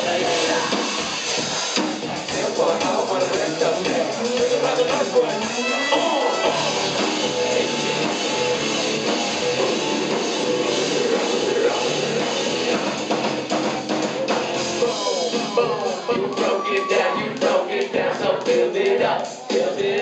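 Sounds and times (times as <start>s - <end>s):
person singing: 0.0s - 1.0s, 2.3s - 8.1s, 14.7s - 20.0s
rock band playing live: 0.0s - 20.0s
drum hits: 6.4s - 20.0s.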